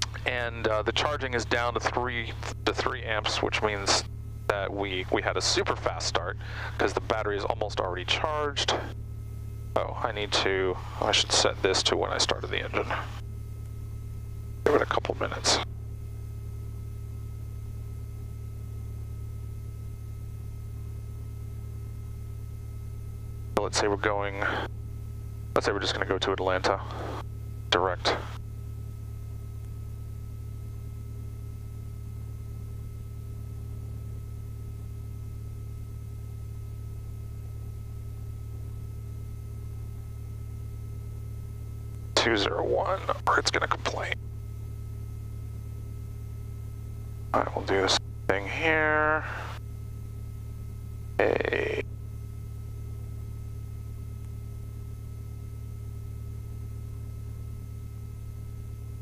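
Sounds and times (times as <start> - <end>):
aircraft engine idling: 0.0 - 8.9
aircraft engine droning: 0.0 - 16.1, 23.6 - 28.4, 47.0 - 49.6.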